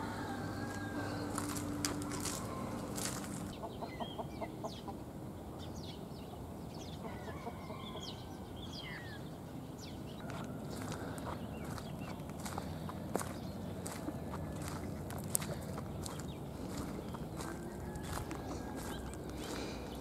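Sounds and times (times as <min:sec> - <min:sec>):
hens clucking: 0:00.0 - 0:05.1, 0:10.3 - 0:20.0
wild birds chirping: 0:00.0 - 0:20.0.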